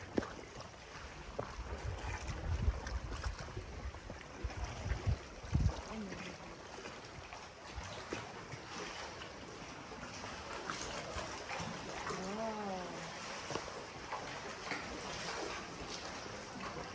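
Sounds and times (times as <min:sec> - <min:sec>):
small water splashes: 0:00.0 - 0:16.9
water lapping against a hull: 0:00.0 - 0:16.9
wind buffeting the microphone: 0:01.1 - 0:06.1.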